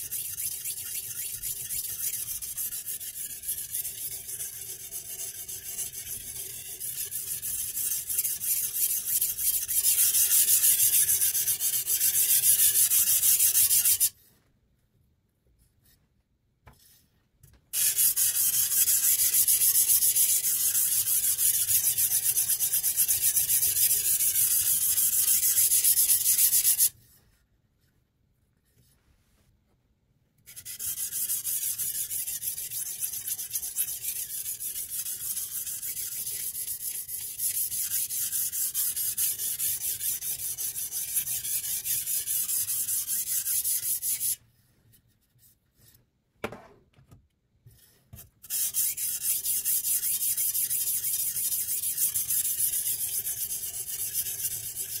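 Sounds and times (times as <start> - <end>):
sharpening stone scraping knife: 0.0 - 14.1, 17.8 - 26.9, 30.5 - 44.4, 48.4 - 55.0.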